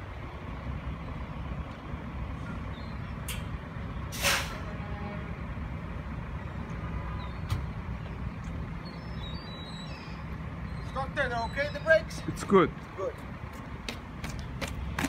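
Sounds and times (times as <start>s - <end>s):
truck engine idling: 0.0s - 15.0s
air brake hiss: 4.1s - 4.7s.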